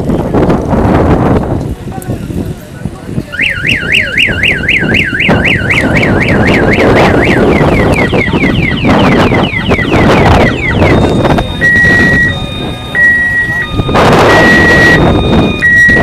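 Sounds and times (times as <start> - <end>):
truck reversing siren: 3.3 - 16.0
truck engine running: 3.4 - 16.0.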